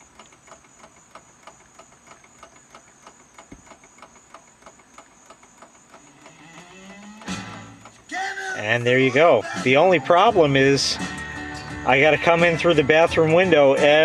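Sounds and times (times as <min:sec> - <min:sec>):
faint regular ticking: 0:00.0 - 0:08.1
thin high whine: 0:05.9 - 0:08.0
low notes rising in steps: 0:06.0 - 0:07.9.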